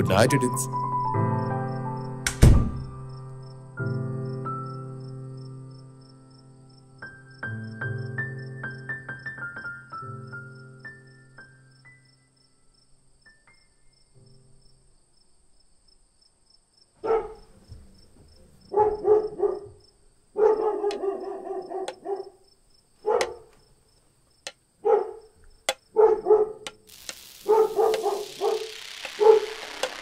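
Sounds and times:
crickets chirping: 2.9 - 9.5, 10.1 - 30.0
dog barking: 17.0 - 17.6, 18.7 - 22.4, 23.0 - 23.6, 24.8 - 26.8, 27.4 - 29.5
hiss: 26.7 - 30.0.

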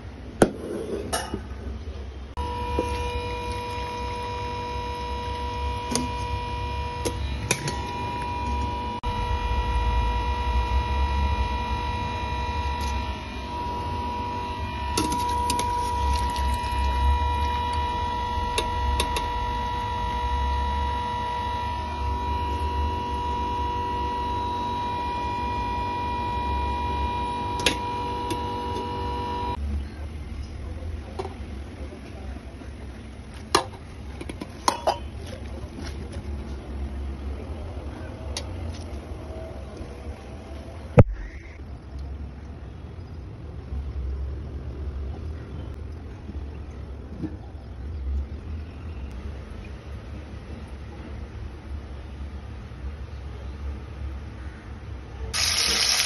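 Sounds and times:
steady hum over low rumble: 2.2 - 30.8.

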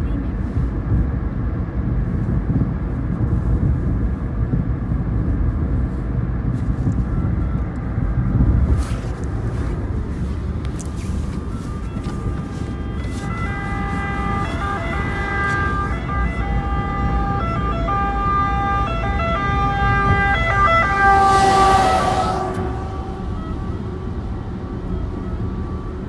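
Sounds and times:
car road and engine rumble: 0.0 - 26.0
truck passing with rush of air: 0.0 - 26.0
two-tone fire engine siren: 9.4 - 26.0.

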